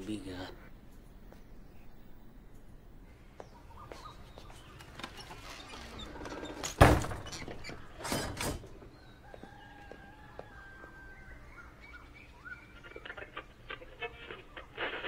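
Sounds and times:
faint high chirping: 0:08.8 - 0:14.7.

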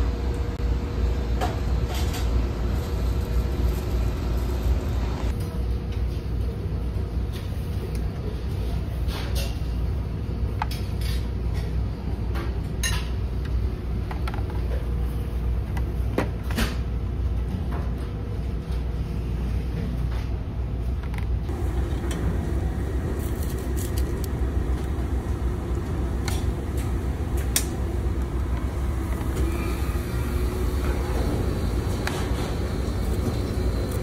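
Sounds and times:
ship engines droning: 0:21.5 - 0:34.0.

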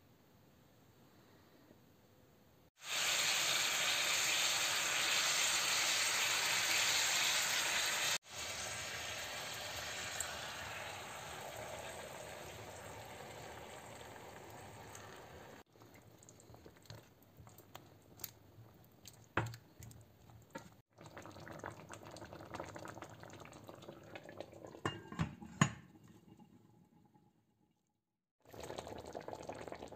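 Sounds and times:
sauce sizzling in a pan: 0:02.8 - 0:15.6
glass lid clinking on pan: 0:24.8 - 0:25.8.

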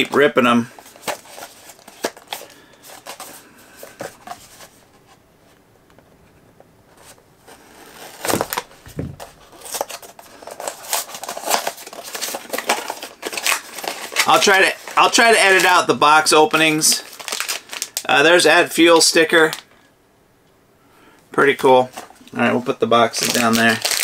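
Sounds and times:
packaging crinkling: 0:00.8 - 0:04.6, 0:07.5 - 0:19.6, 0:23.0 - 0:24.0
cardboard tearing: 0:07.5 - 0:15.7, 0:23.2 - 0:24.0.

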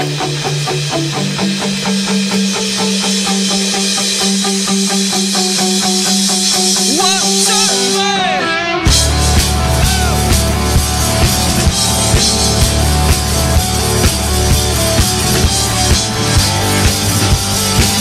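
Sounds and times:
electric guitar picking: 0:00.0 - 0:18.0
heavy drums: 0:00.0 - 0:18.0
held bass note: 0:08.9 - 0:17.9.

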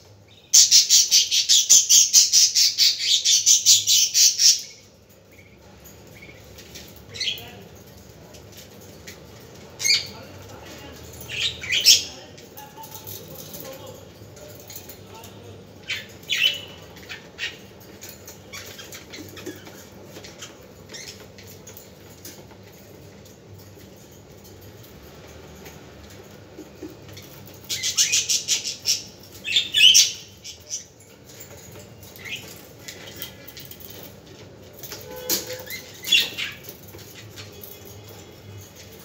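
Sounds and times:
budgerigars chirping and squawking: 0:00.3 - 0:04.8, 0:15.8 - 0:21.5, 0:27.2 - 0:30.8.

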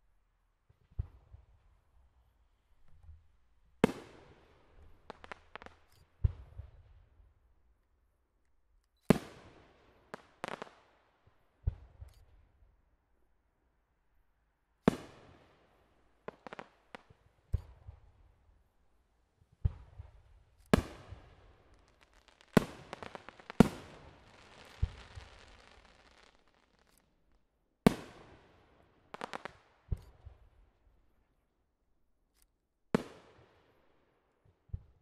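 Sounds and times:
quick firework pops: 0:16.3 - 0:18.1, 0:19.6 - 0:27.1, 0:29.1 - 0:30.4
firework crackle: 0:20.5 - 0:27.1, 0:29.2 - 0:29.6
firework bangs echoing: 0:20.8 - 0:26.9.

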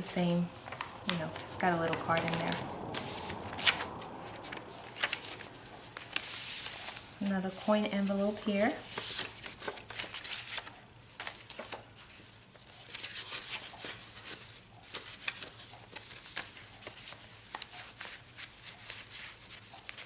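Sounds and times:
paper rustling and rubbing: 0:00.0 - 0:20.0
small paper crinkles and taps: 0:08.1 - 0:11.8.

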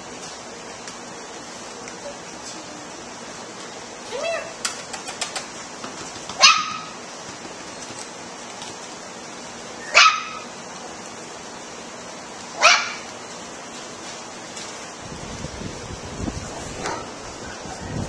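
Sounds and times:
puppy barking: 0:06.4 - 0:07.0, 0:09.8 - 0:10.5, 0:12.6 - 0:13.1.

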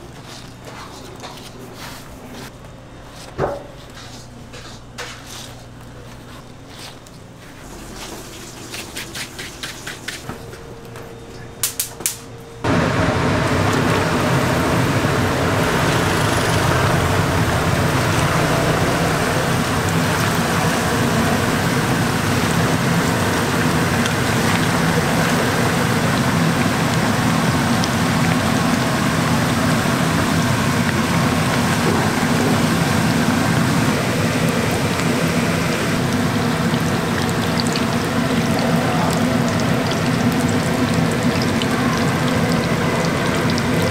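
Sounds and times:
deep-frying sizzle in hot oil: 0:11.7 - 0:43.9.

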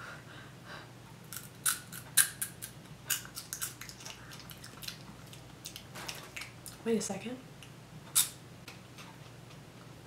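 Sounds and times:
crisp chip crunching: 0:01.3 - 0:06.8.

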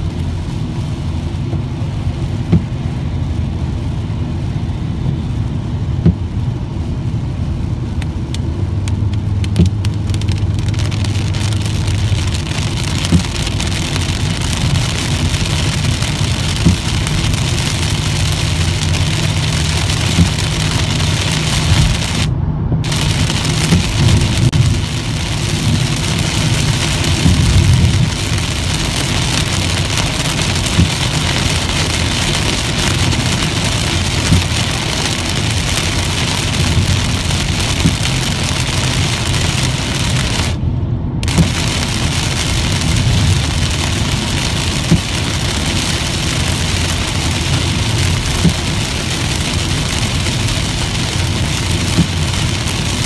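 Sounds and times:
engine and road rumble: 0:00.0 - 0:53.0
heavy rain on car roof: 0:00.0 - 0:53.0
windshield wipers clicking: 0:08.1 - 0:22.3, 0:22.9 - 0:40.6, 0:41.2 - 0:53.0
tyre spray: 0:22.9 - 0:40.6.

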